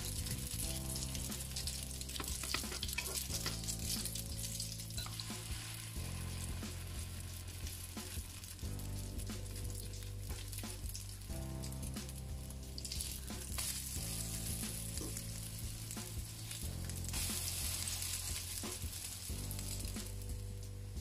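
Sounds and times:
fritters sizzling in hot oil: 0.0 - 21.0.

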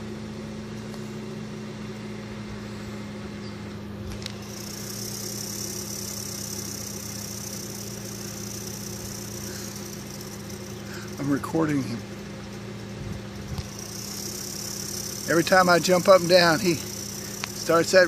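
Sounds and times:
low mechanical hum: 0.0 - 18.0
rattlesnake rattle buzzing: 4.1 - 18.0.

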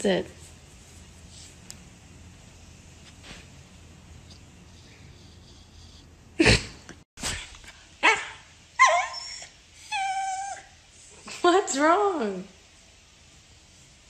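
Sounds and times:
dog whining: 8.0 - 10.8.

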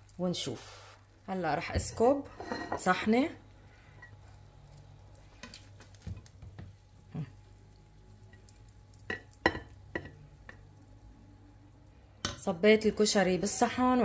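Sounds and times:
spoon clinking on pot and plate: 8.3 - 10.6.

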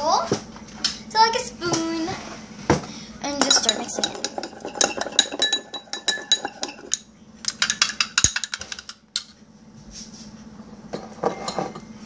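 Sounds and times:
spoon clinking against bowl: 3.4 - 7.0.

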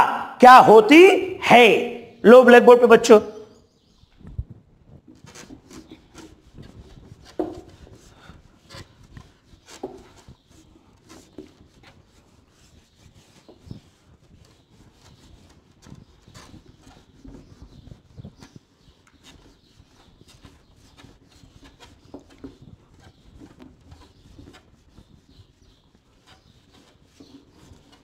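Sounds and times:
duster scrubbing whiteboard: 5.2 - 28.0.

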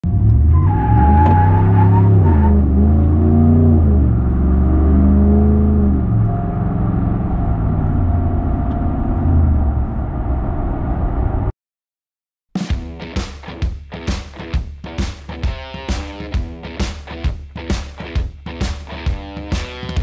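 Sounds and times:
truck engine accelerating: 0.0 - 11.5.

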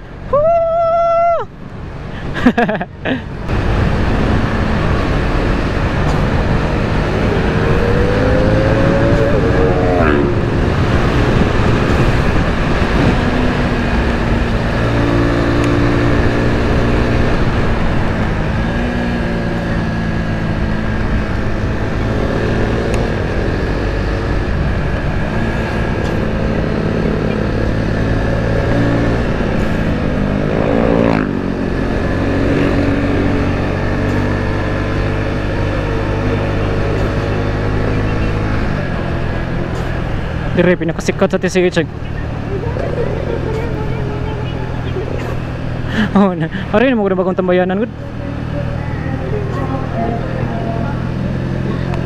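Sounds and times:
wind rush: 3.2 - 40.6
motorcycle engine running: 3.5 - 52.0.

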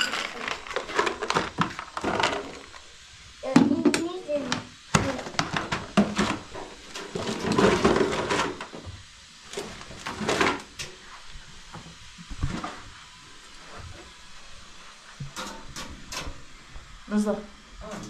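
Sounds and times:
dishes clattering: 0.0 - 2.4.

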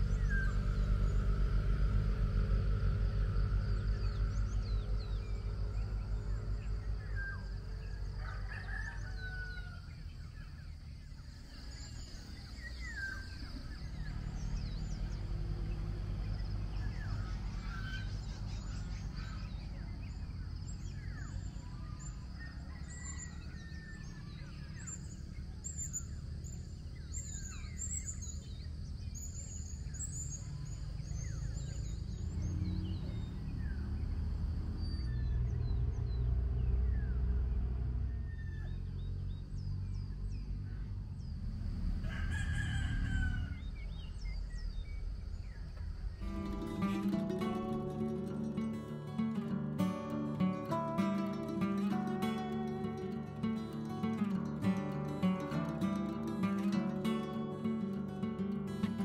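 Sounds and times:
steady low rumble: 0.0 - 8.2
wild birds chirping: 0.0 - 59.0.

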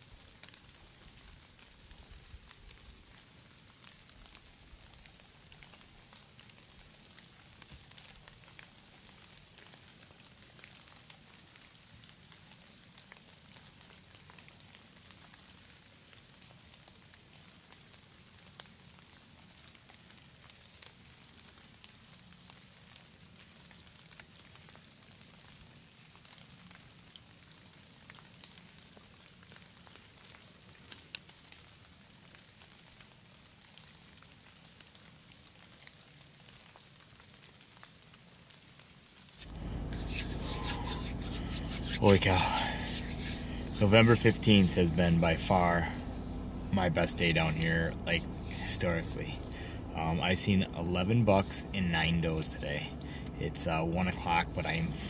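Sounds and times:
small ticks and crackles: 0.0 - 55.0
faint steady hiss: 39.2 - 55.0.

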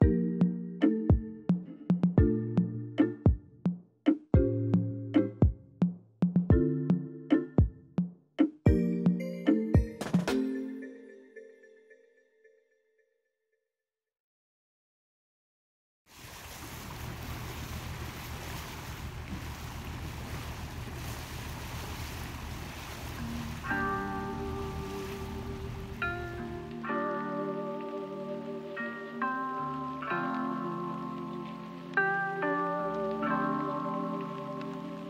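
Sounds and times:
music notes: 0.0 - 12.0, 23.2 - 35.0
ringing struck notes music: 8.6 - 12.0
water washing along hull: 16.1 - 35.0.

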